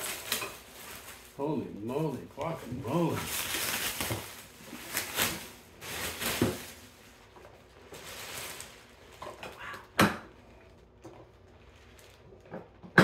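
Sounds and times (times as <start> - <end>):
plastic wrap rustling: 0.0 - 12.8.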